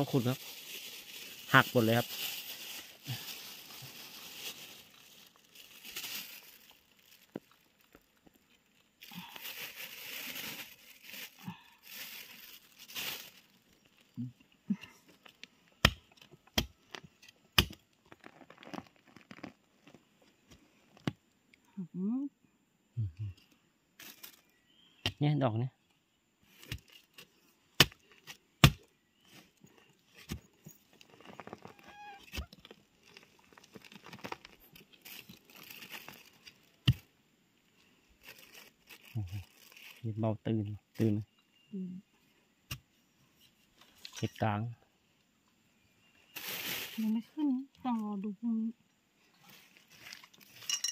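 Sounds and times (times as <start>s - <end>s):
soil and leaf litter scraping: 0.0s - 14.0s, 29.2s - 36.9s, 38.1s - 40.1s, 46.3s - 47.2s, 49.4s - 50.7s.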